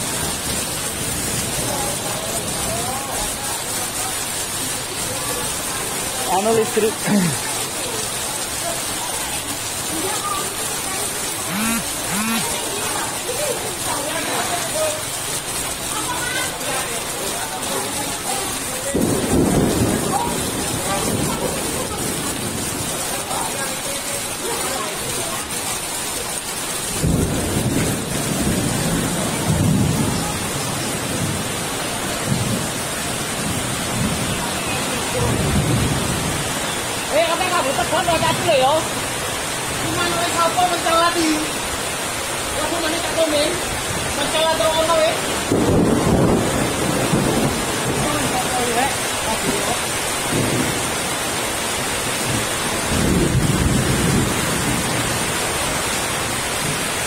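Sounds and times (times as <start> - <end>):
heavy rain: 0.0 - 57.0
low thunder rumble: 18.9 - 22.9, 27.0 - 34.5, 45.3 - 51.1, 52.1 - 55.5.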